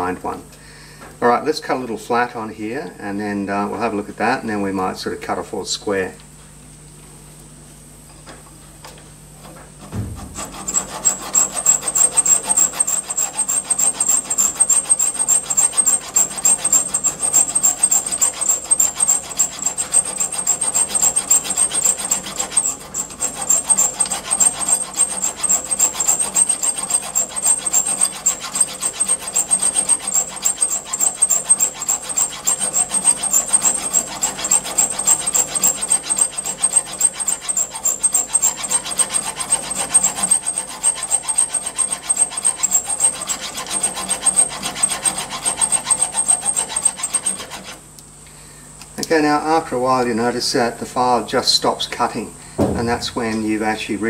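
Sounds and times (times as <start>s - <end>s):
file rasping on steel rod: 9.5s - 47.8s.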